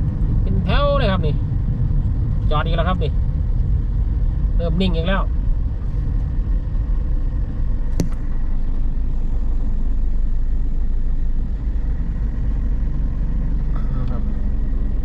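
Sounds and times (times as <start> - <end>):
car engine rumble: 0.0 - 15.0
road noise: 0.0 - 15.0
sharp click: 8.0 - 8.2.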